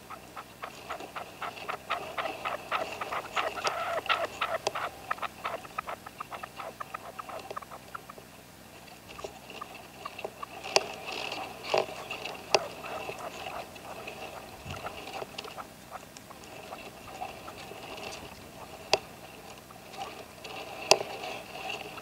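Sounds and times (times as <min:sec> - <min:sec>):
partridge clicking call: 0:00.1 - 0:08.2.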